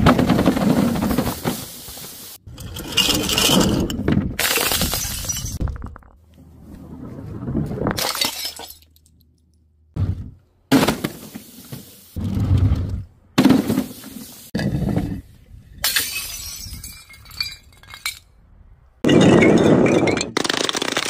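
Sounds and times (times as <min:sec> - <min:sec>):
objects crashing onto stone paving: 0:02.6 - 0:06.2
glass shattering: 0:04.4 - 0:05.6, 0:08.0 - 0:09.0, 0:15.8 - 0:18.2.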